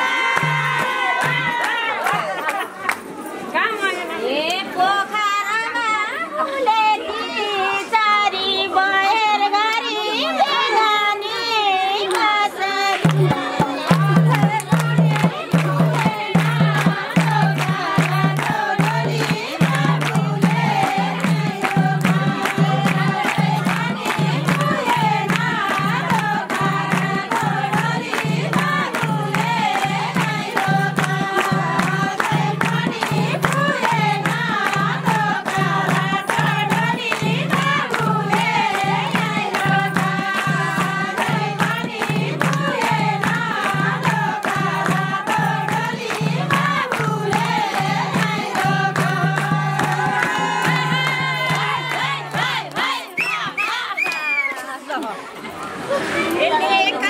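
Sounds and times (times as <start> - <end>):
hand-clapping: 0.0 - 3.1, 12.0 - 55.1
women singing folk song: 4.5 - 54.5
steady drum beat: 13.0 - 53.0.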